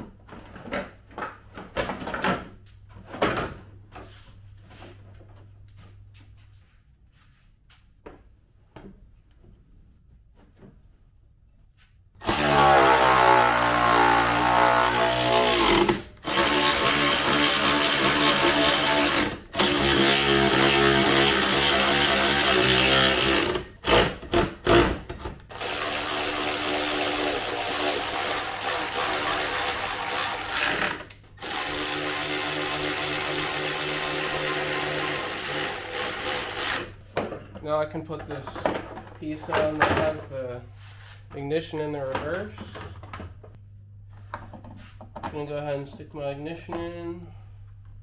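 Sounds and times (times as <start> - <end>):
electric ratchet whining: 12.2 - 37.0.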